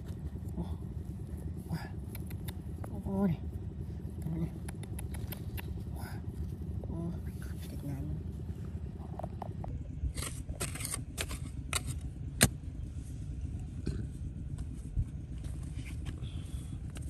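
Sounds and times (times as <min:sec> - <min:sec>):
low motor rumble: 0:00.0 - 0:17.0.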